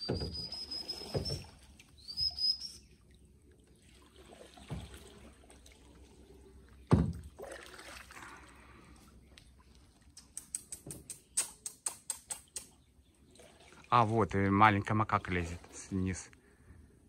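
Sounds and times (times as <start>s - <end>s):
water knocking against boat hull: 0.0s - 1.5s, 6.9s - 7.4s
bird whistling high: 0.0s - 2.9s.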